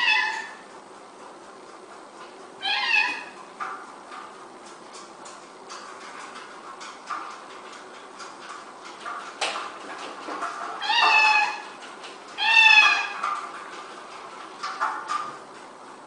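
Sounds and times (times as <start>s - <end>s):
cat meowing: 0.0s - 0.6s, 2.6s - 3.4s, 10.8s - 11.6s, 12.4s - 13.2s
exercise wheel clicking: 0.0s - 16.0s.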